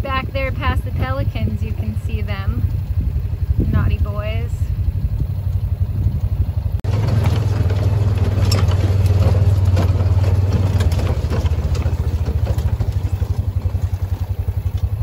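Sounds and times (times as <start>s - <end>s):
vehicle engine droning: 0.0s - 15.0s
light rattles: 4.3s - 15.0s.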